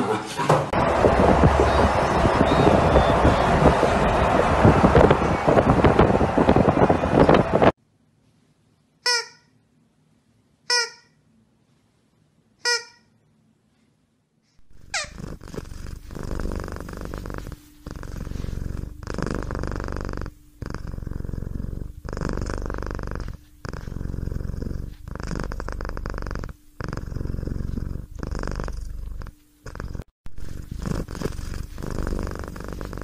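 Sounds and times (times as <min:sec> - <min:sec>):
cat purring: 0:14.6 - 0:33.0.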